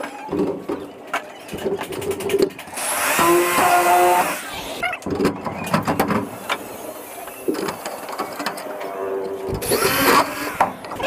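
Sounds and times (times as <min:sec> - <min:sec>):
cordless drill driving screws: 0:09.6 - 0:10.6.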